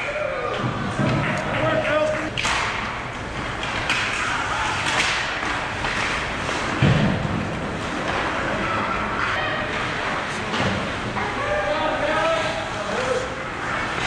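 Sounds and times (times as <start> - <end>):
hockey sticks on ice: 3.6 - 7.1.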